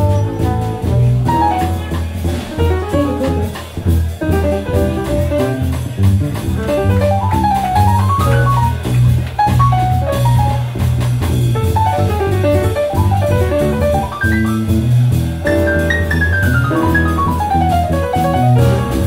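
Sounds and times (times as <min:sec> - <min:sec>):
bass line: 0:00.0 - 0:19.0
jazz fusion band playing: 0:00.0 - 0:19.0.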